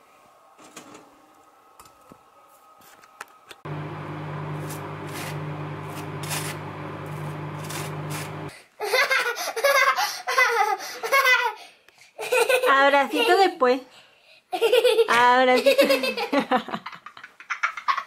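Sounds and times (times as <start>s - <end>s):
knife scraping dry toast: 4.6s - 8.4s
child laughing hard: 8.8s - 12.7s.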